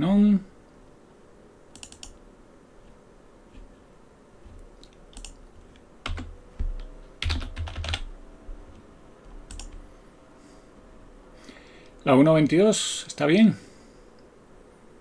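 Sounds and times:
keyboard typing: 1.7 - 2.2, 4.5 - 8.1, 9.4 - 9.8.

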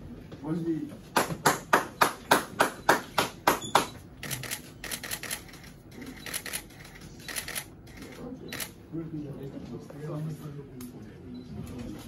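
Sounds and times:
camera shutters clicking: 4.2 - 8.7.

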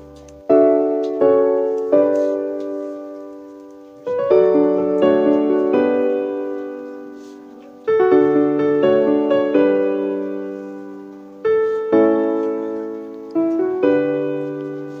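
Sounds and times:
slow gentle piano chords: 0.0 - 15.0.

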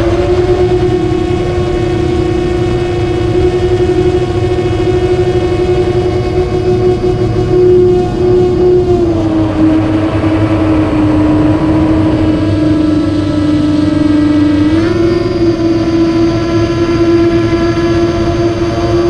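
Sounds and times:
drone propellers whining: 0.0 - 19.0.

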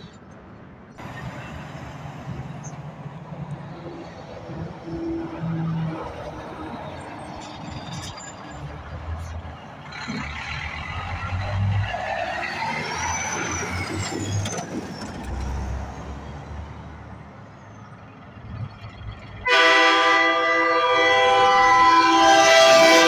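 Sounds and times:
truck engines rumbling past: 0.0 - 23.0
truck air horn chord: 19.4 - 23.0.

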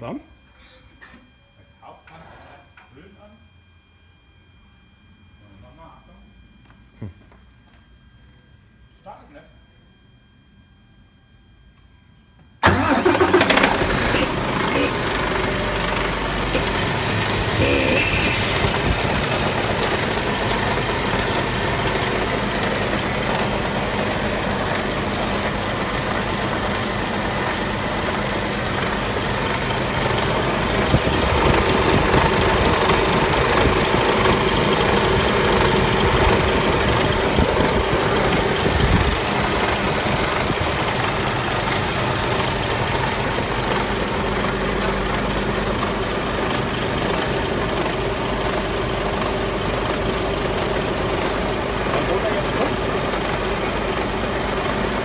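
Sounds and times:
diesel truck engine idling: 12.6 - 55.0.

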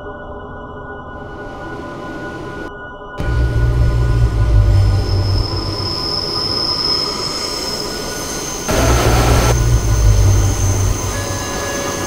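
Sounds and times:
subway train rumbling: 1.2 - 12.0
high-pitched wheel squeal: 4.5 - 12.0.

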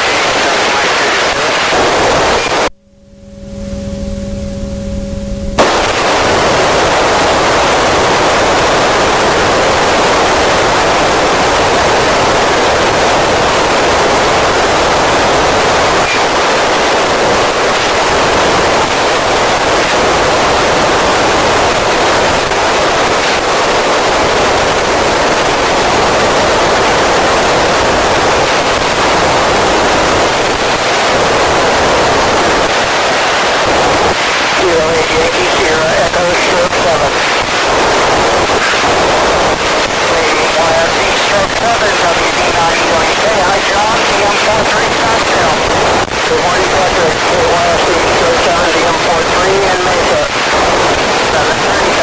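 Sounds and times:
radio static hiss: 0.0 - 2.8, 5.4 - 52.0
faint low hum: 1.8 - 16.0.

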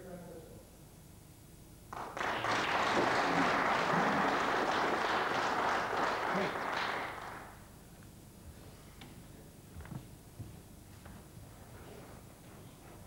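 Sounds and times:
audience applauding: 1.9 - 7.7.

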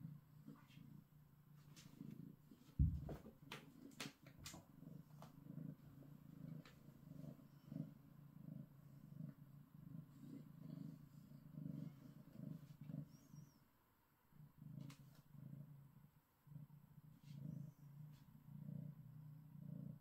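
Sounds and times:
cat purring: 0.0 - 20.0.

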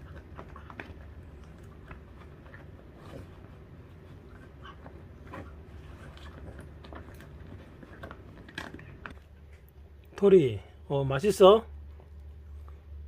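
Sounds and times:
dog gnawing bone: 0.0 - 9.6
low steady hum: 0.0 - 13.0.

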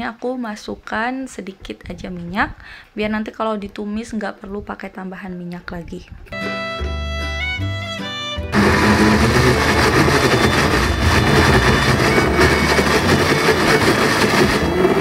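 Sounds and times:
electric blender running: 8.5 - 15.0.

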